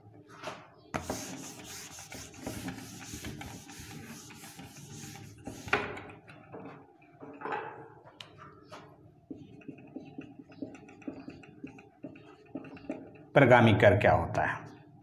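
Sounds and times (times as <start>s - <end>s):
duster rubbing on whiteboard: 1.0s - 6.0s.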